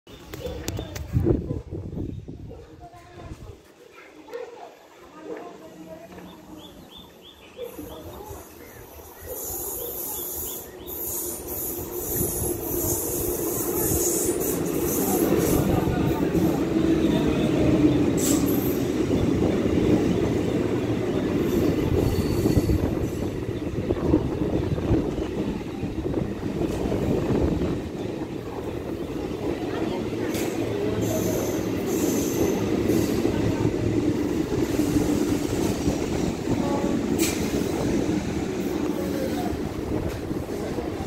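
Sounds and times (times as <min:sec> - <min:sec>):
train wheels rumbling on rail: 0:05.9 - 0:41.0
train wheels squealing: 0:07.9 - 0:15.8, 0:18.1 - 0:19.0, 0:21.2 - 0:23.5, 0:30.4 - 0:33.6.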